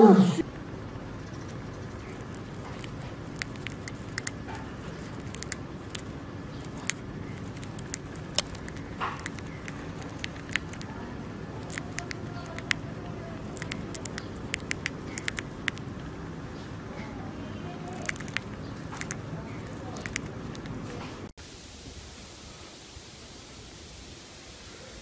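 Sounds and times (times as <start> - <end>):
steady low hum: 0.0 - 23.3
hamster nibbling popcorn: 1.4 - 16.2, 17.0 - 21.3.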